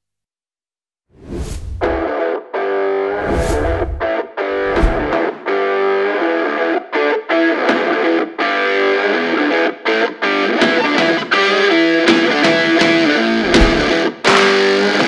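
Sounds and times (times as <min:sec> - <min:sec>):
low bass: 0:01.2 - 0:02.1, 0:03.2 - 0:05.2, 0:13.4 - 0:14.0
electric guitar music: 0:02.0 - 0:03.2, 0:03.9 - 0:15.0.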